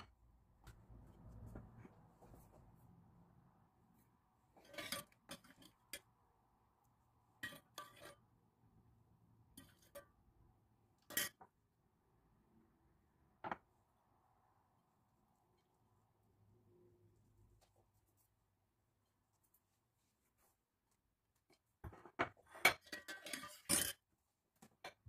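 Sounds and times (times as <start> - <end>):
metal spoon clinking on pot: 7.4 - 8.2, 22.6 - 24.0.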